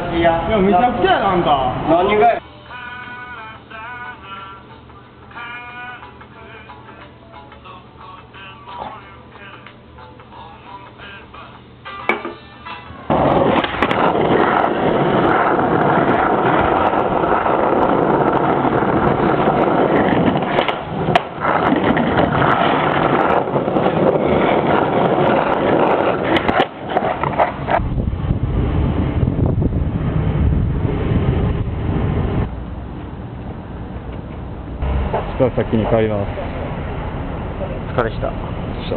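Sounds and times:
skateboard clicks and knocks: 13.1 - 27.9
skateboard wheels rolling on asphalt: 13.1 - 36.0.

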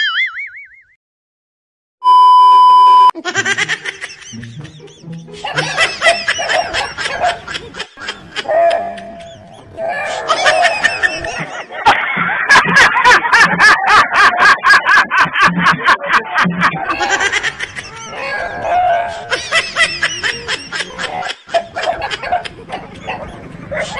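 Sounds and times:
laughter: 3.2 - 18.4, 19.1 - 23.9
music: 4.3 - 6.2.

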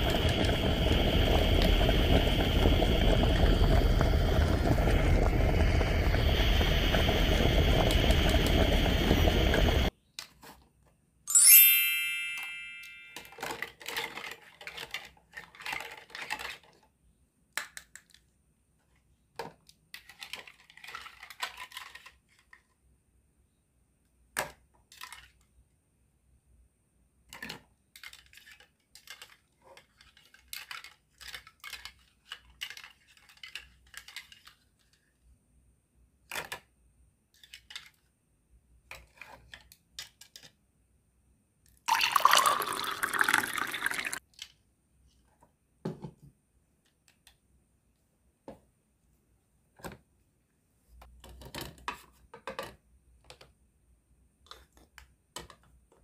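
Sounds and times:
plastic toy pieces clicking in pot: 27.3 - 34.9.

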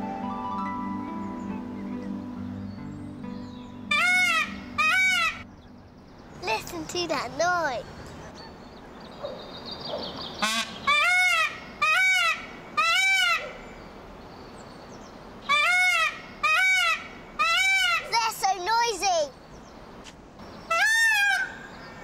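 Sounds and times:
peacock calling: 3.9 - 5.5, 8.2 - 13.7, 15.4 - 18.3, 20.4 - 22.0.

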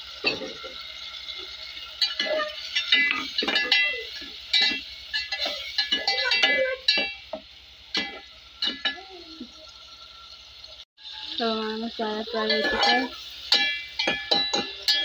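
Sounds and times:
metal spoon scraping a metal pot: 1.8 - 7.3, 12.4 - 15.0.

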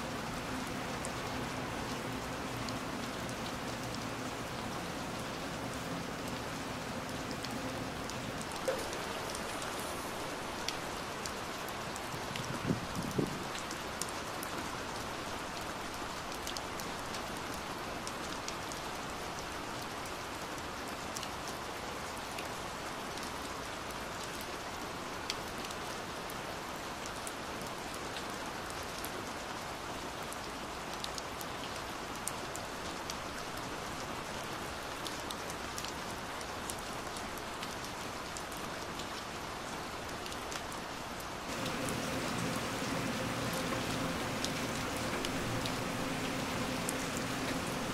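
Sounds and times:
heavy rain on window glass: 0.0 - 20.1, 40.2 - 47.9.

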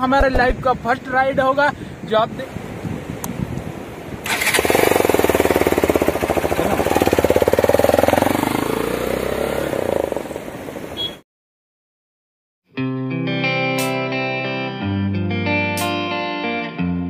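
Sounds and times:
motorcycle engine pulling away: 4.2 - 11.0.

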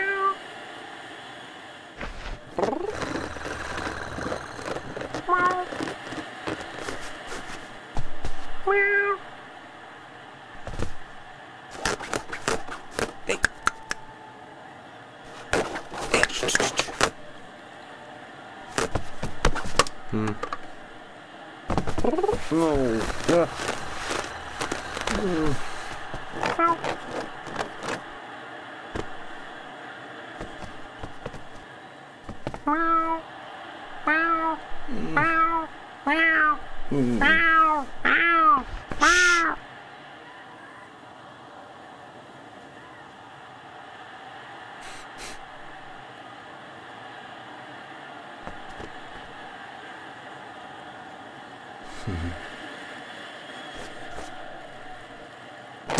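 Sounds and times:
cat claws scratching upholstery: 2.0 - 7.7, 11.7 - 13.2, 15.3 - 17.2, 18.7 - 19.9, 21.7 - 28.1, 30.4 - 31.6, 32.3 - 32.8
cartoon cat meowing: 5.3 - 5.7, 8.7 - 9.2, 32.7 - 33.2, 34.1 - 36.6, 37.2 - 39.6.

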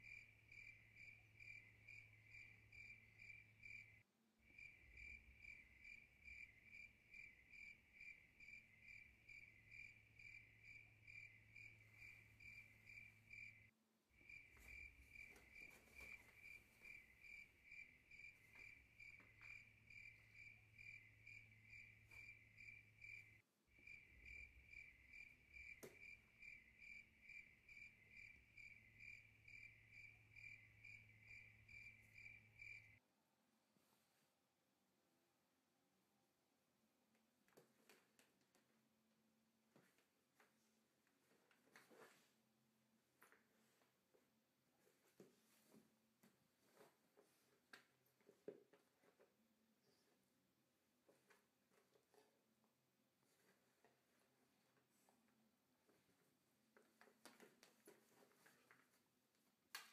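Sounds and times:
cricket chirping: 0.0 - 33.0.

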